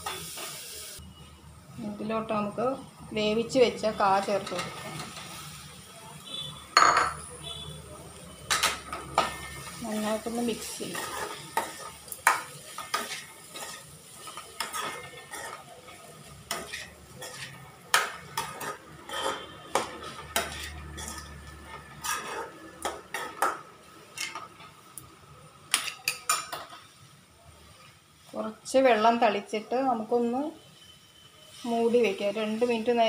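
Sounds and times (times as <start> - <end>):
metal spoon scraping a pan: 3.8 - 5.6, 8.5 - 24.8, 25.7 - 27.0.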